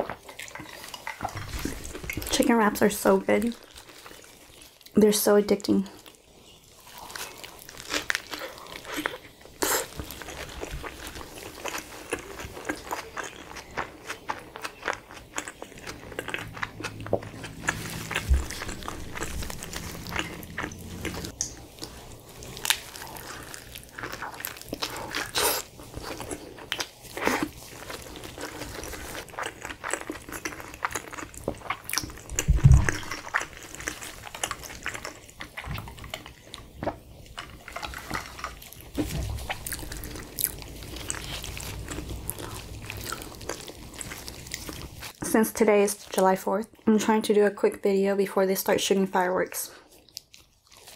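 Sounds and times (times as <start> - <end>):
crunchy chewing: 6.0 - 45.2, 49.8 - 50.9
low thump: 32.4 - 33.2.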